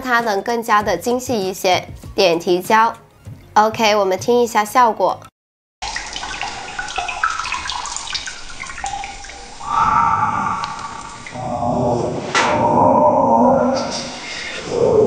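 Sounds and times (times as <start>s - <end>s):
echoing water drips: 5.8s - 13.0s
eerie growling scraping: 9.3s - 15.0s.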